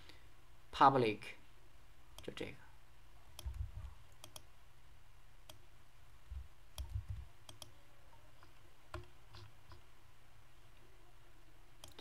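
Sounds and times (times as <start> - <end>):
mouse and keyboard clicks: 3.4 - 4.5, 6.8 - 7.8, 11.8 - 12.0
dull low thumps: 6.3 - 7.3.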